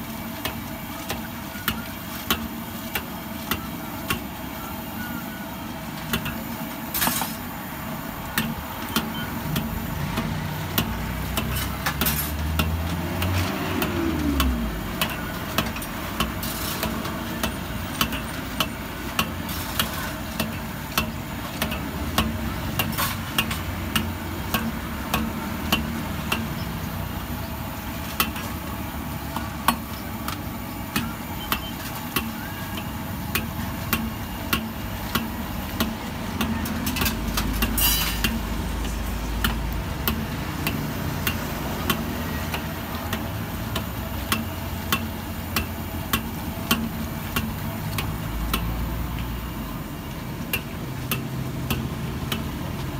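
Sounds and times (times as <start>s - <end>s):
food frying in hot oil: 0.0s - 52.9s
steel ladle scraping wok: 16.3s - 17.1s, 36.8s - 38.4s.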